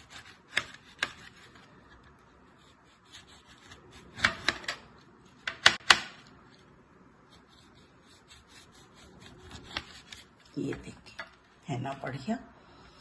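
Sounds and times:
knife sawing through orange: 0.0 - 1.5, 2.5 - 4.6, 7.3 - 10.4.

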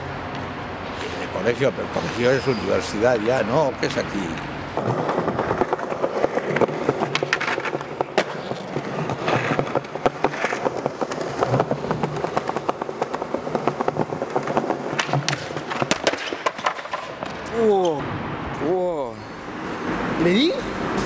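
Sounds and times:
skateboard wheels rolling on stone: 0.8 - 18.0
skateboard clacking on ground: 3.9 - 18.0.

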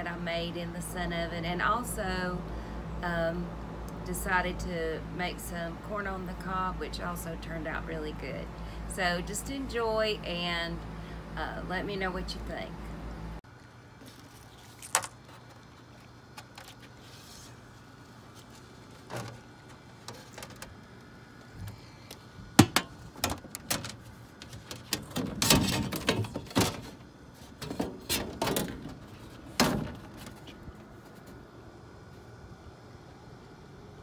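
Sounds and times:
metal reflector panels clattering: 22.6 - 30.6.

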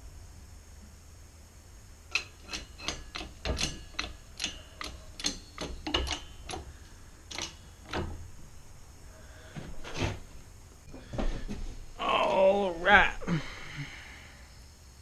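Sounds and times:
hydraulic press handle clacking: 2.1 - 8.3.

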